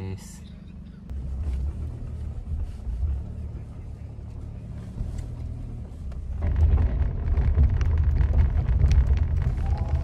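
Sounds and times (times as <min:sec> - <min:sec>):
van cabin low rumble: 0:00.0 - 0:10.0
scattered crackle: 0:06.0 - 0:10.0.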